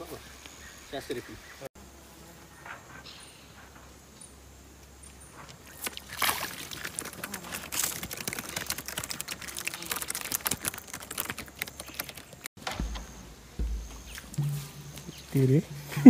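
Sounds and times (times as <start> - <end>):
footsteps crunching through dry grass: 12.8 - 16.0.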